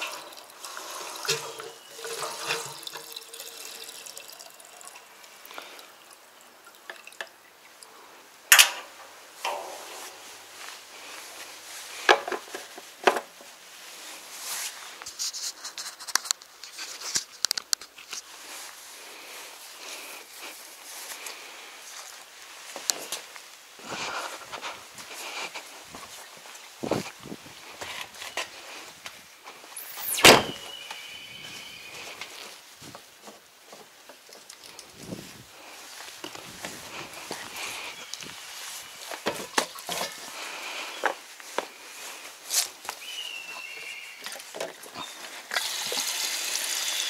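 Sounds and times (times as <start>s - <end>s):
clicks and rustling of objects: 8.5s - 13.6s, 14.5s - 18.8s, 19.9s - 29.7s, 32.0s - 46.1s
high ringing tone: 29.8s - 32.1s
glass door slamming shut: 30.0s - 30.7s.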